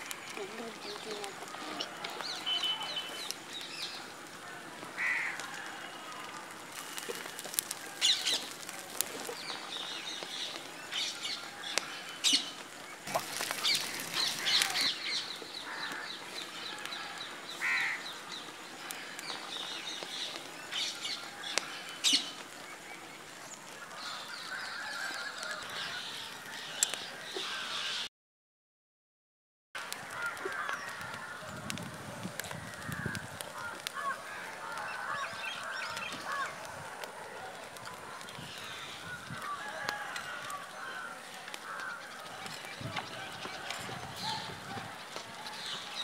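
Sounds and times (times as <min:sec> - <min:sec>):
sharp crackles: 0:00.0 - 0:28.0, 0:29.8 - 0:46.0
bird calls: 0:00.0 - 0:28.1.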